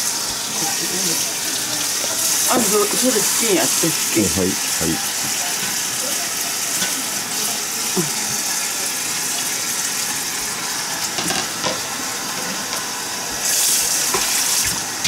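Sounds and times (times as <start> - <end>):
tap running into metal bowl: 14.1 - 14.8.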